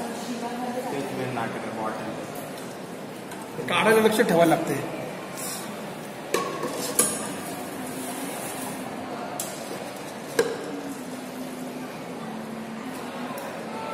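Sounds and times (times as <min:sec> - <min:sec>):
conveyor humming: 0:00.0 - 0:13.9.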